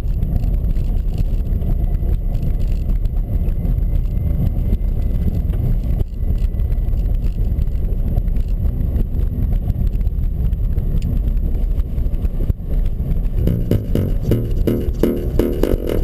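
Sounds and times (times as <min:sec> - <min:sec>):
car engine and tyre noise: 0:00.0 - 0:16.0.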